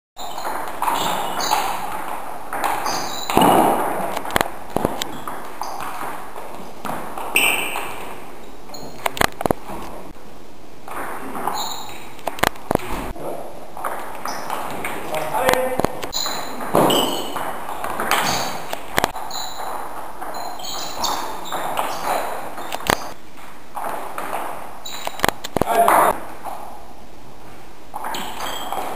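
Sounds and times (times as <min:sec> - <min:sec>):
short high squeaks: 0:00.2 - 0:01.9, 0:02.8 - 0:03.5, 0:08.7 - 0:09.1, 0:11.4 - 0:12.1, 0:16.1 - 0:17.4, 0:18.1 - 0:23.2, 0:24.8 - 0:25.3, 0:28.1 - 0:28.9
shoes squeaking on floor: 0:00.2 - 0:10.2, 0:10.9 - 0:13.2, 0:13.8 - 0:26.8, 0:27.9 - 0:28.9.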